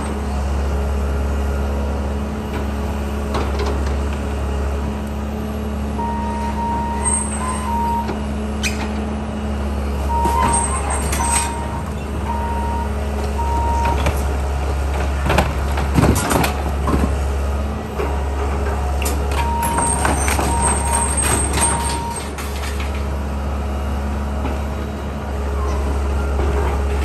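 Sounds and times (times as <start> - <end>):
excavator diesel engine running: 0.0 - 27.0
backup alarm beeping: 6.0 - 8.2, 10.0 - 14.4, 19.3 - 22.4.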